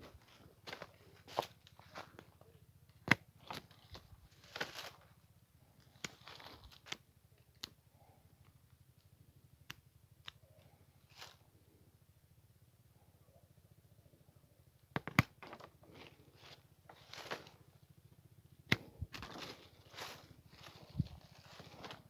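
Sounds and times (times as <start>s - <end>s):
branches and leaves rustling: 3.4s - 5.2s, 5.8s - 7.0s, 15.4s - 18.0s, 18.7s - 22.0s.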